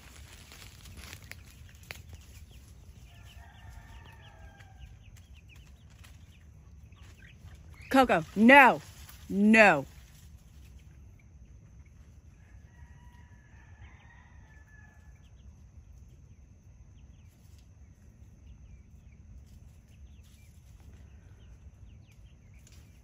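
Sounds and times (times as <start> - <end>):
chickens calling: 0.0 - 15.6.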